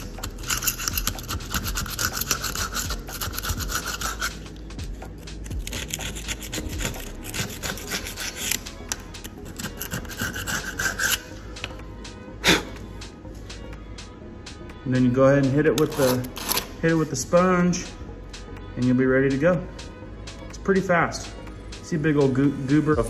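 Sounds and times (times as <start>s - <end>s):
razor blade scraping mortar: 0.0s - 4.6s, 5.2s - 11.4s, 15.8s - 16.7s.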